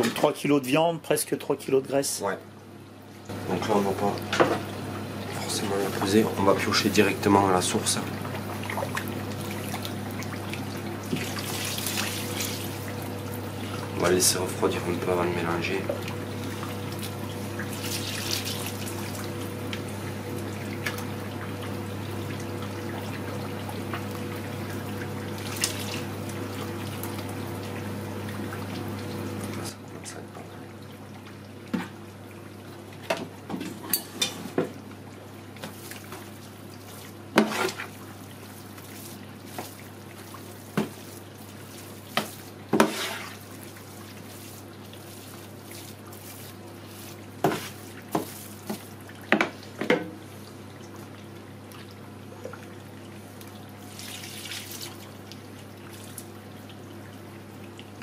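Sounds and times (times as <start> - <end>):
utensil knocks while stirring: 47.4 - 50.1.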